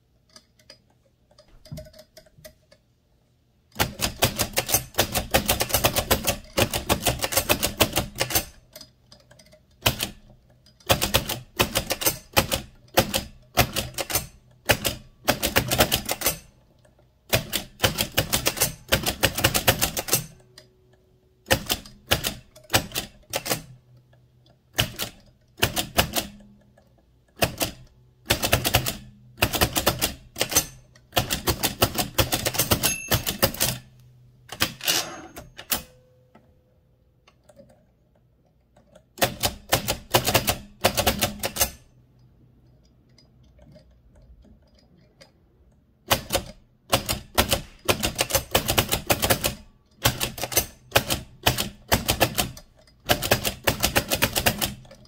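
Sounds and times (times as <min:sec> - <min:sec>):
typewriter clattering clicks: 0:03.8 - 0:16.6, 0:17.3 - 0:20.5, 0:21.5 - 0:23.8, 0:24.7 - 0:26.5, 0:27.4 - 0:33.9, 0:34.5 - 0:36.0, 0:39.2 - 0:41.9, 0:46.1 - 0:55.0.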